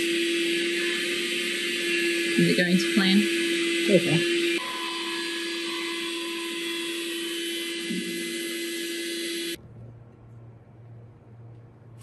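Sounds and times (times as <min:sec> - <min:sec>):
heat gun blowing: 0:00.0 - 0:09.6.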